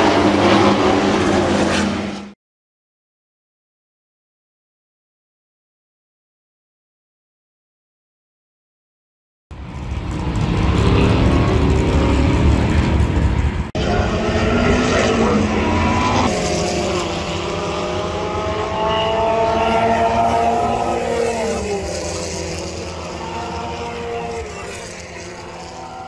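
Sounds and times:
race cars passing: 0.0 - 2.4, 9.6 - 26.0.

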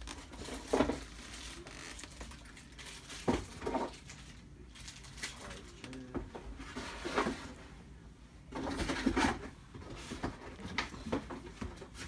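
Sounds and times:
rustling and scraping on a desk: 0.0 - 4.2, 6.1 - 7.8, 8.5 - 12.0.

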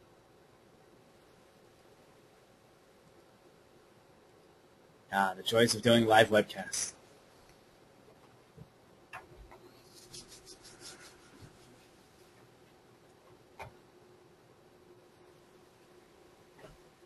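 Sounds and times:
light ticks and rubs: 9.5 - 13.2.

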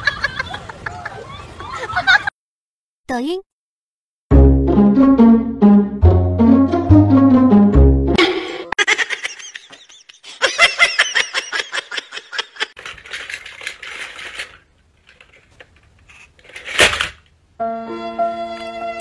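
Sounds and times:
person laughing: 8.2 - 12.8.

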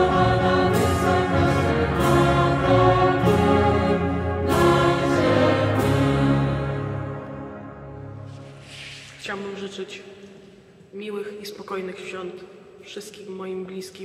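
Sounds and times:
mixed choir singing a carol: 0.0 - 8.2.

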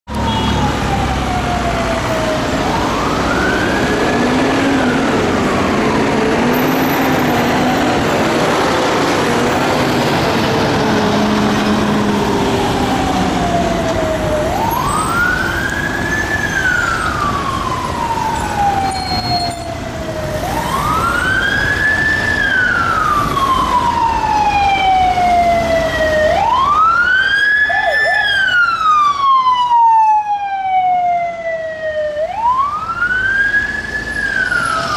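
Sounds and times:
police sirens wailing: 0.1 - 34.9
road traffic noise: 0.1 - 34.9.

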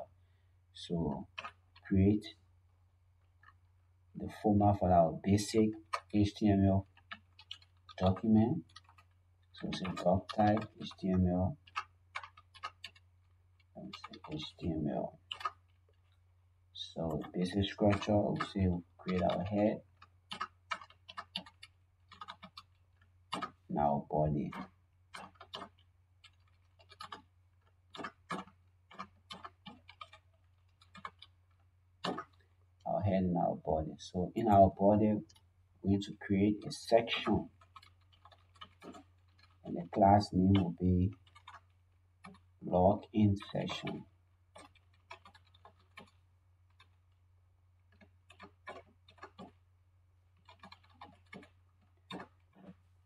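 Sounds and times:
computer keyboard keystrokes: 5.6 - 13.0, 15.3 - 15.8, 17.1 - 18.5, 19.1 - 23.6, 24.4 - 31.3, 32.0 - 32.4, 36.6 - 42.4, 43.4 - 47.0, 47.9 - 49.6, 50.4 - 52.8
keyboard keystroke clicks: 27.9 - 30.2.

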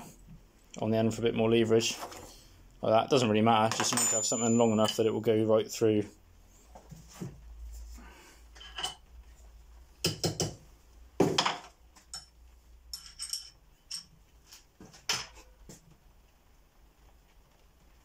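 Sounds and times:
steel hand tools clinking: 3.8 - 5.0, 12.9 - 14.1.

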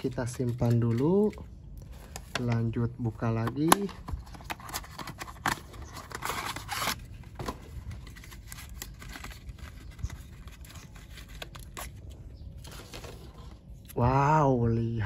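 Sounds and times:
packaging clicks and taps: 3.3 - 6.6
cardboard tearing and rustling: 3.3 - 13.6.

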